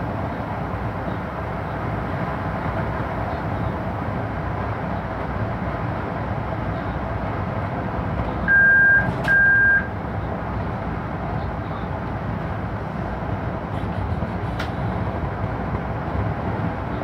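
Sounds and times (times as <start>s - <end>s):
train cab rumble: 0.0s - 17.0s
click: 14.6s - 14.8s.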